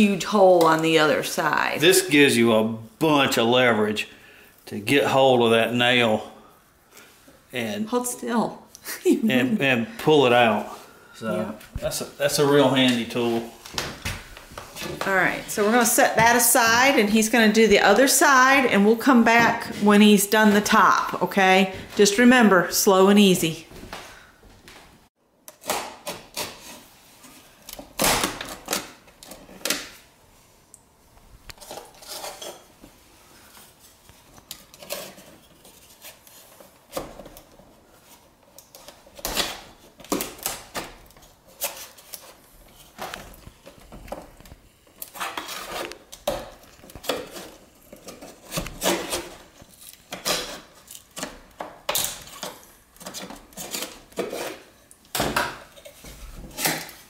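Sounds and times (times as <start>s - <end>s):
tools scraping wood: 45.0s - 54.9s.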